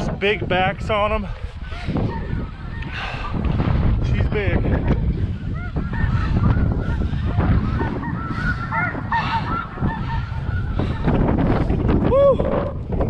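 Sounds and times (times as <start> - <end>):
wind on microphone: 0.0 - 13.0
geese honking: 4.4 - 11.2.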